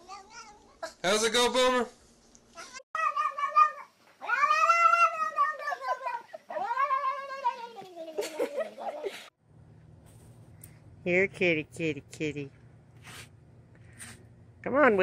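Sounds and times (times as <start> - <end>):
cat meowing: 3.0 - 7.8.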